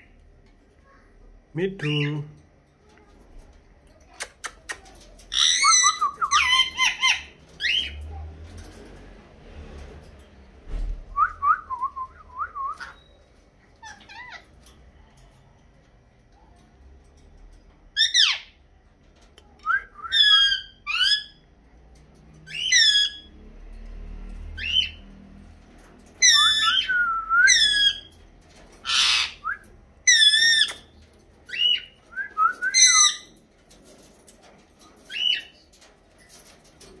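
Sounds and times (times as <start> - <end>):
parrots shrill calls: 5.3 - 8.0, 13.8 - 14.5, 18.0 - 18.6, 20.1 - 21.4, 22.5 - 23.3, 26.2 - 28.1, 28.8 - 30.9, 32.7 - 33.3.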